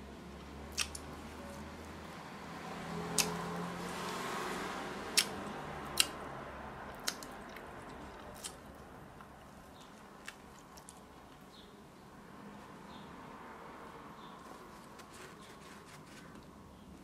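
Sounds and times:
person chewing: 0.7 - 1.1, 5.2 - 6.2, 6.9 - 11.4
sharp mouth clicks: 0.7 - 1.1, 3.1 - 3.4, 5.2 - 6.2, 7.0 - 8.6.

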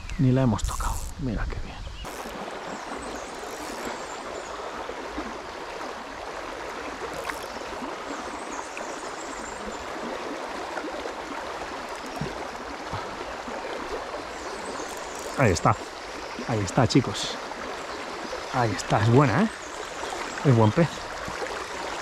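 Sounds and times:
river water babbling: 2.0 - 22.0.

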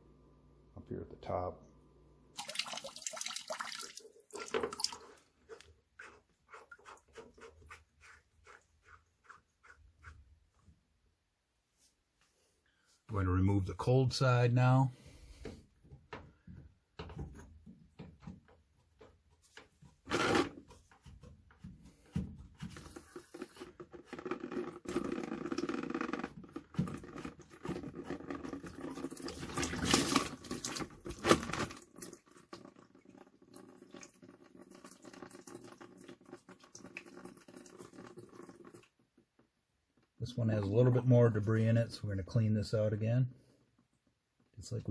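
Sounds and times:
water pattering out: 2.4 - 5.6, 28.4 - 38.9.

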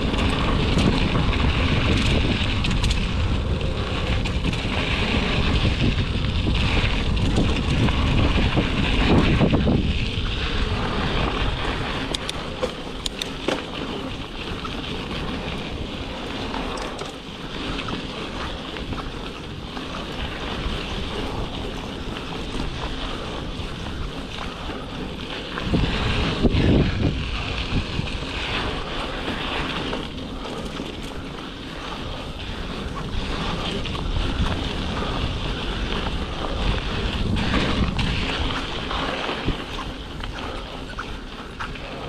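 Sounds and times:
bike clicks and rattles: 0.0 - 42.0
bike tyres rolling over gravel: 0.0 - 42.0
wind buffeting microphone: 0.0 - 42.0.

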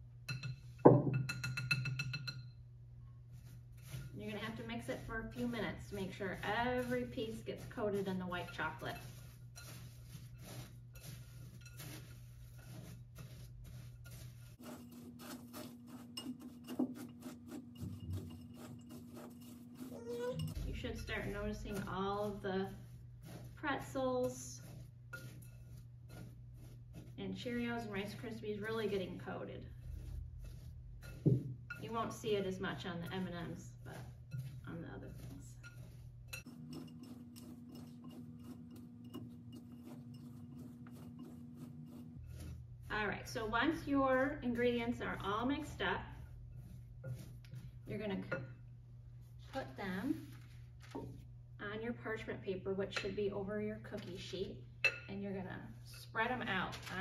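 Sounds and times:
snack mix scraping in bowl: 3.3 - 48.6.

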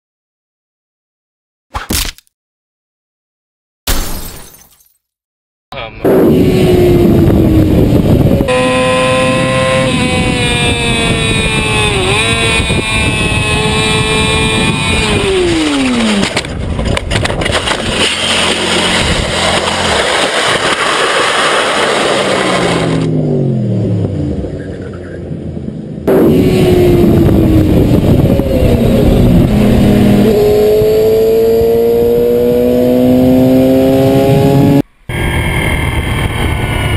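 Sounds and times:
motorcycle engine revving: 6.0 - 25.4, 26.0 - 36.9
motorcycle sliding and tumbling: 6.2 - 25.3.

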